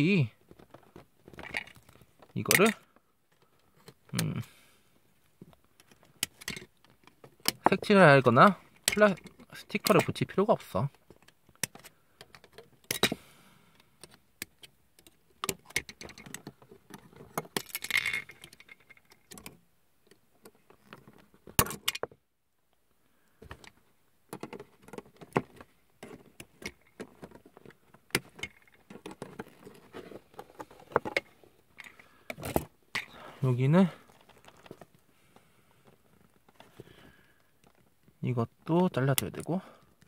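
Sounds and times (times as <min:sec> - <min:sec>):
plastic parts rattling: 0:00.4 - 0:04.4, 0:05.7 - 0:13.2, 0:13.9 - 0:22.2, 0:23.4 - 0:35.0.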